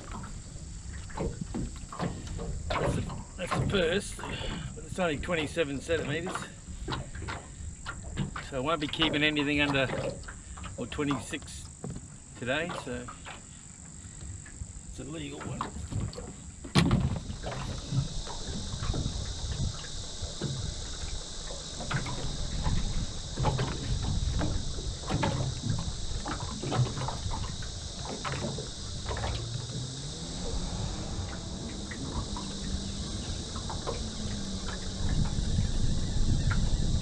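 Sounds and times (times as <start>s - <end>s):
fishing gear knocking in boat: 0.0s - 10.8s, 15.4s - 30.2s
insect chorus: 0.0s - 37.0s
wind on microphone: 14.2s - 37.0s.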